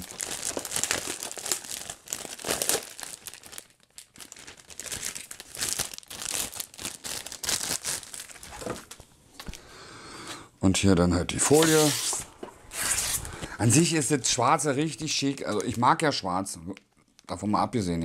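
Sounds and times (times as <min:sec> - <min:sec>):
plastic bag crinkling: 0:00.0 - 0:09.1, 0:14.7 - 0:16.2.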